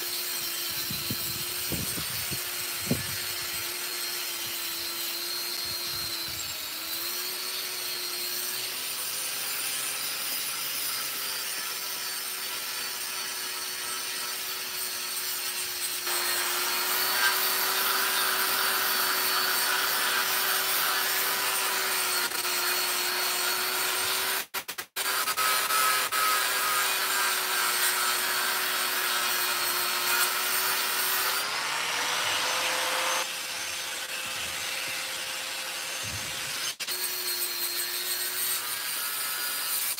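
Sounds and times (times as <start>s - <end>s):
angle grinder motor whining: 0.0s - 8.7s
grinding on steel: 0.0s - 24.4s, 25.1s - 39.9s.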